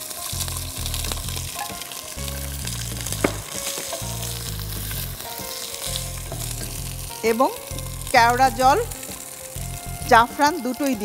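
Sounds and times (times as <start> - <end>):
rice sizzling in a pot: 0.0 - 11.0
wooden spatula knock: 3.2 - 4.2.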